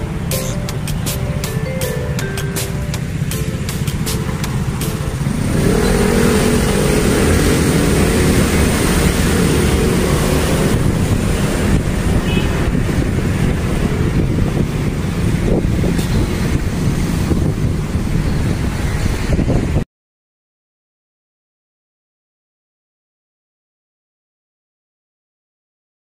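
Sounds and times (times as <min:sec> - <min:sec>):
steady traffic noise: 0:00.0 - 0:19.8
vehicle engine passing by: 0:04.6 - 0:19.8.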